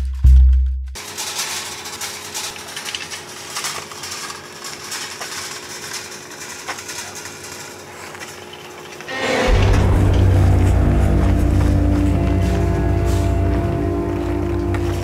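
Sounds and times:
shopping cart rattling on pavement: 0:01.0 - 0:09.1.

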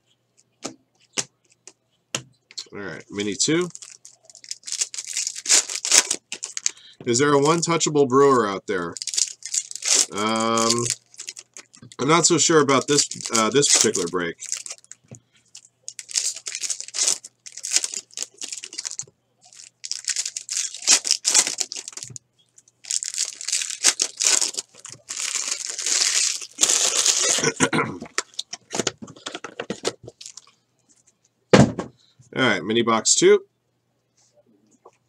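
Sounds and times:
foil wrappers tearing and crinkling: 0:03.6 - 0:07.7, 0:08.8 - 0:15.0, 0:15.9 - 0:22.2, 0:22.8 - 0:28.5, 0:30.1 - 0:30.5.

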